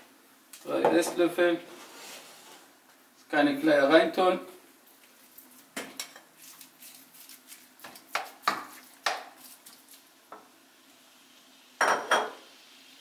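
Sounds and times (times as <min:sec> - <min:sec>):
spatula scraping bowl and pan: 0:01.7 - 0:02.7
meat sizzling: 0:04.7 - 0:13.0.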